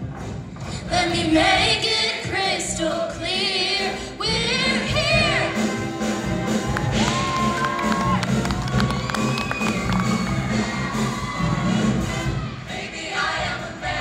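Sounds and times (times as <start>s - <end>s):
choir singing with vibrato: 0.8s - 7.3s, 10.0s - 14.0s.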